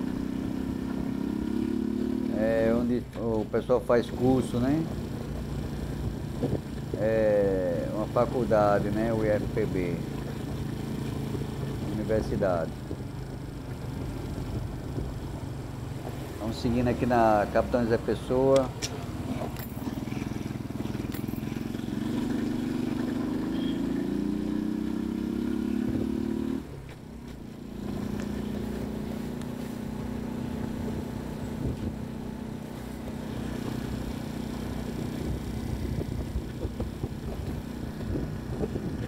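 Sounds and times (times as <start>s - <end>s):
small motorbike engine accelerating: 0.0s - 2.7s, 18.9s - 39.0s.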